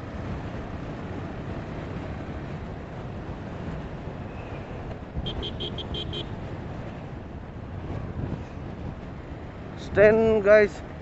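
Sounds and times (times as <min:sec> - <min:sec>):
road and traffic rumble: 0:00.0 - 0:11.0
car horn toots: 0:05.2 - 0:06.4.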